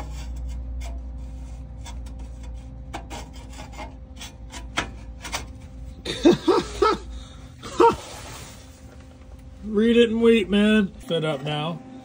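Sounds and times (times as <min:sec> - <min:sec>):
metal scraping and clicking: 0:00.0 - 0:05.7
steady low hum: 0:00.0 - 0:12.0.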